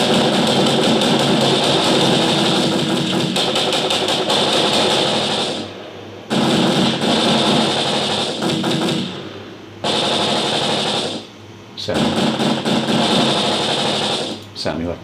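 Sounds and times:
gunshots and impacts: 0.0 - 5.7, 6.3 - 9.2, 11.9 - 14.4
steady hiss: 0.0 - 15.0.

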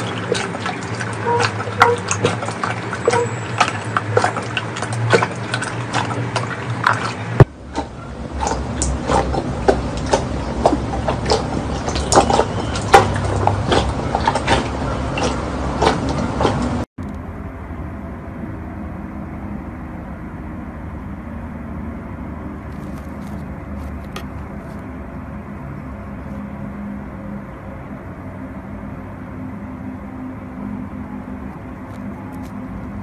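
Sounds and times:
slime squelching and popping: 2.0 - 16.6.

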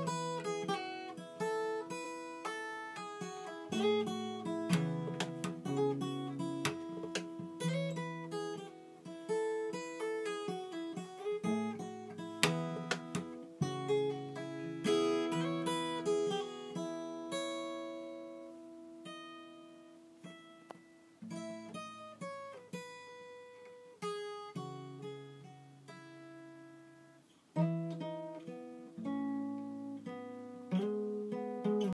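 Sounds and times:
plucked guitar notes: 0.0 - 23.0
acoustic guitar chords strummed: 0.0 - 31.9.

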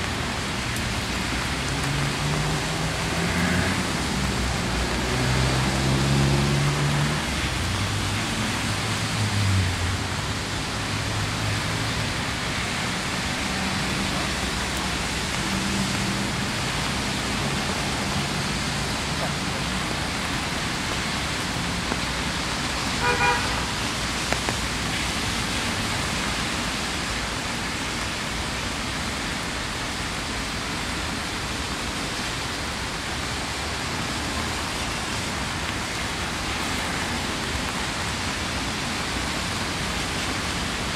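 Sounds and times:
steady rain falling: 0.0 - 40.9
vehicle engine passing: 1.8 - 8.1
car horn toots: 23.0 - 23.7.

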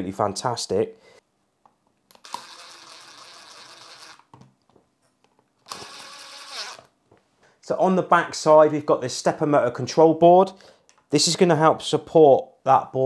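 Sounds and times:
electric screwdriver whirring: 2.1 - 4.3, 5.6 - 6.9.

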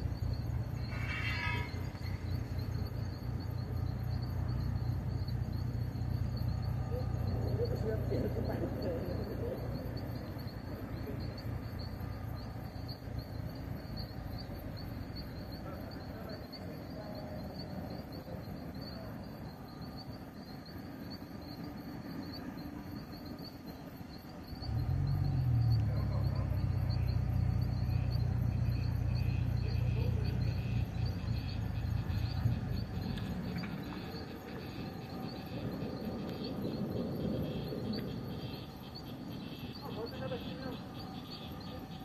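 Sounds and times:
low background rumble: 0.0 - 15.6, 24.2 - 39.6
insects chirping in a trill: 0.0 - 42.0.

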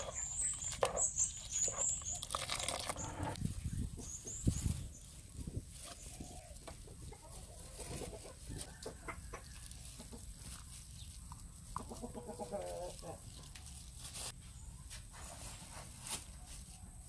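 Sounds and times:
food scraped into metal bowl: 0.0 - 3.4
chickens clucking: 5.8 - 13.7.

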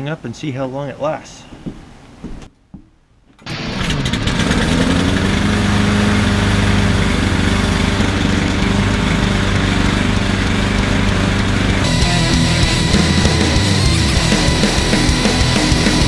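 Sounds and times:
lawn mower engine: 3.5 - 16.0.

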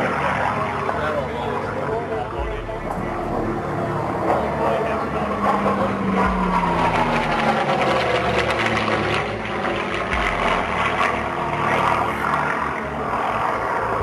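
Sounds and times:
propeller aircraft engine droning: 0.0 - 14.0.

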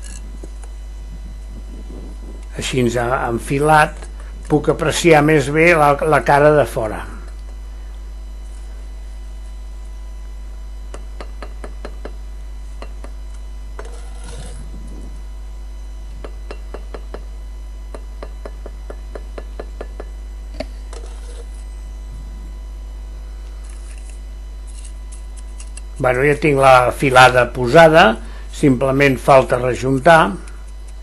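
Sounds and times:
low hum: 0.0 - 31.0
trowel scraping mortar: 13.8 - 14.6, 20.9 - 21.6.

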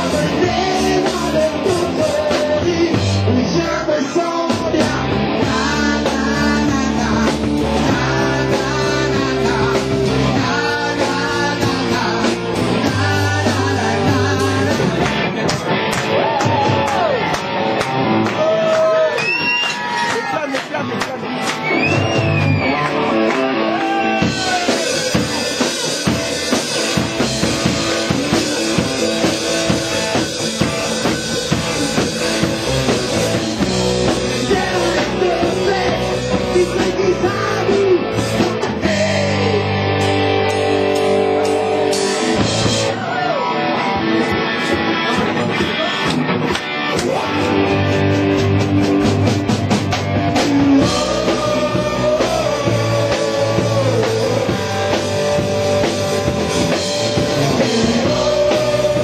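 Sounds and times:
man singing: 0.0 - 15.7, 27.8 - 29.8, 31.5 - 40.3, 50.3 - 56.0, 56.7 - 59.0
live rock band playing: 0.0 - 59.0.

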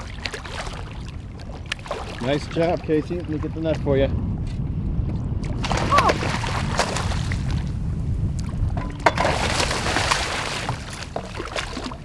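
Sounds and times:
choppy water: 0.0 - 12.0
wind rumble: 0.0 - 12.0
fish splashing in water: 9.0 - 12.0.

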